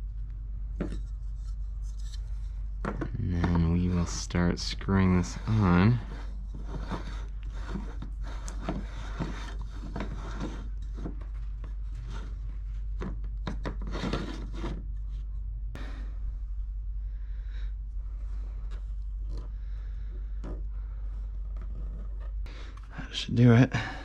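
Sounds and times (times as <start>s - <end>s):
plastic rubbing and scraping: 5.0s - 15.4s, 21.2s - 22.9s.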